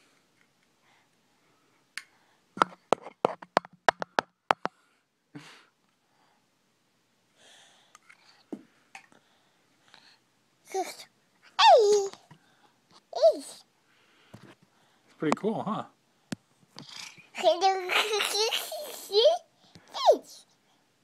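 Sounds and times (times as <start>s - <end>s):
clicks and taps on phone: 2.6s - 4.8s.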